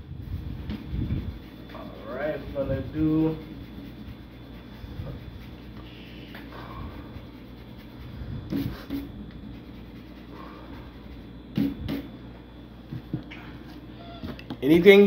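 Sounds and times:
drawing tool rubbing on paper: 0.2s - 12.0s.

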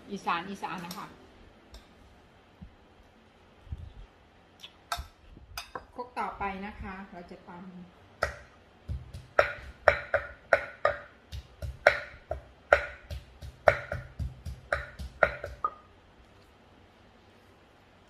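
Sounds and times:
pestle pounding in a clay mortar: 8.2s - 15.9s.

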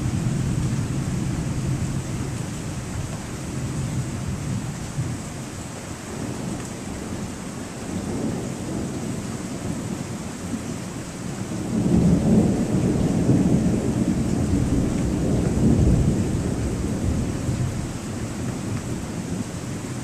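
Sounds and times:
thunder rumbling: 0.0s - 5.3s, 6.1s - 10.2s, 11.4s - 20.0s
steady rain: 0.0s - 20.0s.

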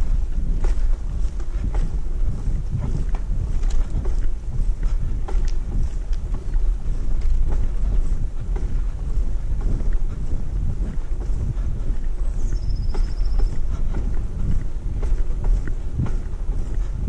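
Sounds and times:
wind buffeting microphone: 0.0s - 17.0s
light clicks and taps: 2.8s - 8.9s.

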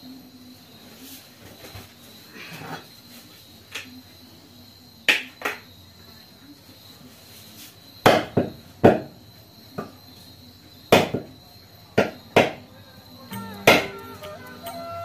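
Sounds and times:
knife chopping on wooden block: 12.0s - 12.6s, 13.7s - 13.9s
background music: 12.8s - 15.0s.

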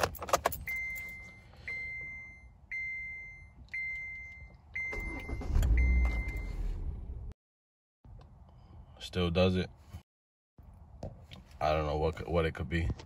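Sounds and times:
car warning chime dinging: 0.6s - 6.7s
car engine cranking and running: 4.9s - 7.3s.

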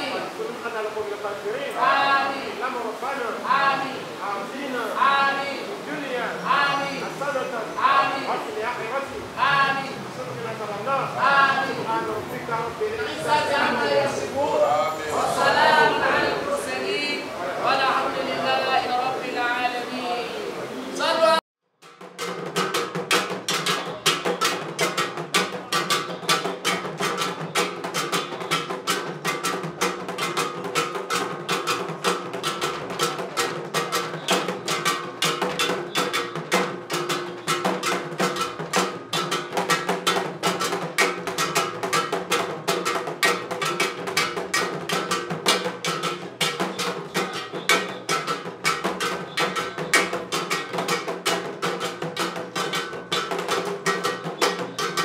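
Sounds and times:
fast dense percussion: 5.0s - 14.4s, 21.7s - 55.0s
wood-block clicking strokes: 21.9s - 55.0s.

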